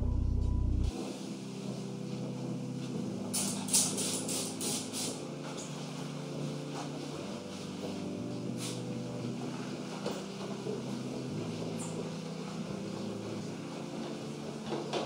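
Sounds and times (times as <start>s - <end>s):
soft background music: 0.0s - 15.0s
short hissing spray strokes: 3.4s - 5.2s.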